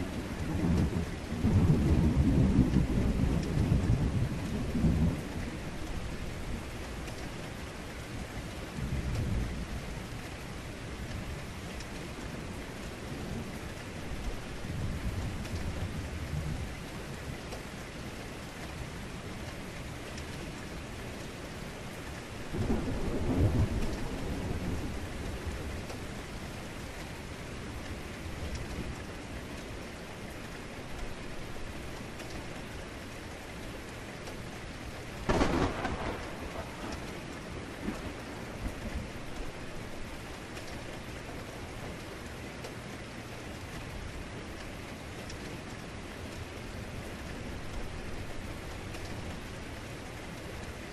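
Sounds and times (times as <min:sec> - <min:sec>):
thunder rumbling: 0:00.0 - 0:06.5, 0:22.5 - 0:26.8, 0:35.2 - 0:41.1
heavy rain: 0:00.0 - 0:50.9
sharp thunderclap: 0:35.3 - 0:38.9.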